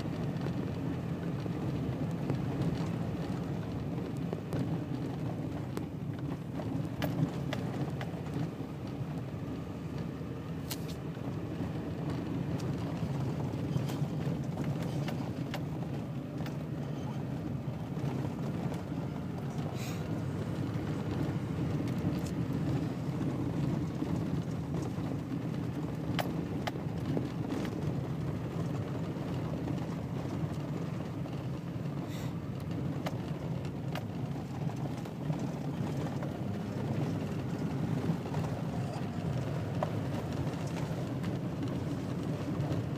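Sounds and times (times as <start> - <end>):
road and engine noise in cabin: 0.0 - 42.9.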